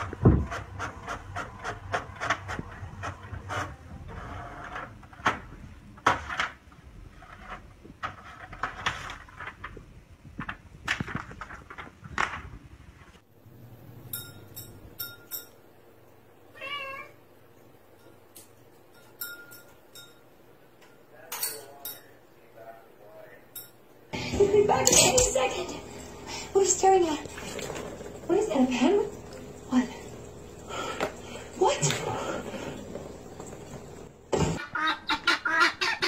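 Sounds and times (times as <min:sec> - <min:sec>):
cat meowing: 0:16.5 - 0:17.2.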